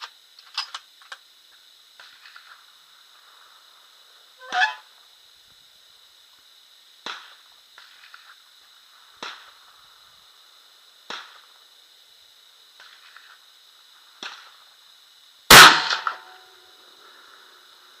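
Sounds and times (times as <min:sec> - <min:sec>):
gunshots: 0:15.5 - 0:16.3.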